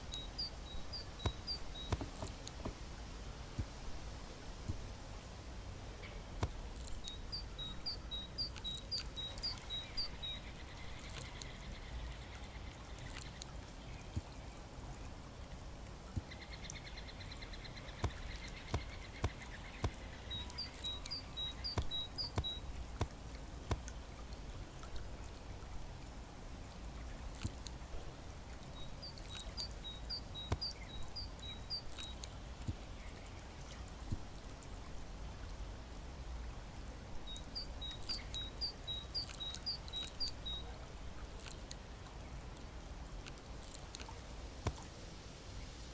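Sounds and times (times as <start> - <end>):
songbird singing high notes: 0.0 - 2.5, 6.8 - 11.7, 16.4 - 23.1, 28.8 - 32.3
faint high bird calls: 0.0 - 2.7, 6.0 - 14.2, 16.2 - 23.1, 37.2 - 41.6
sharp taps: 1.2 - 2.8, 18.0 - 24.0.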